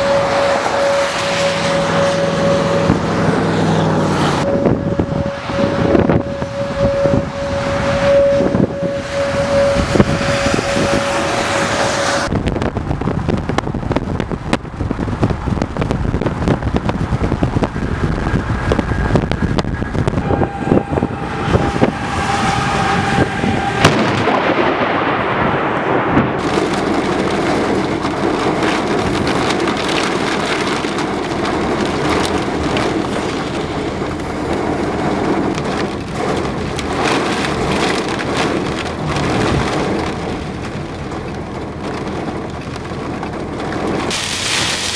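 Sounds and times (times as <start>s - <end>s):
steady tone: 0.0s - 12.4s, 18.3s - 26.4s
wind buffeting microphone: 0.0s - 44.1s
rain: 0.0s - 44.9s
road noise: 0.0s - 44.9s.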